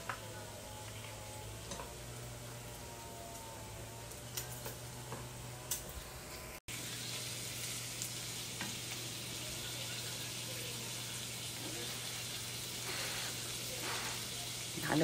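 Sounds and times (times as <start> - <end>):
bacon sizzling in a pan: 6.7 - 15.0.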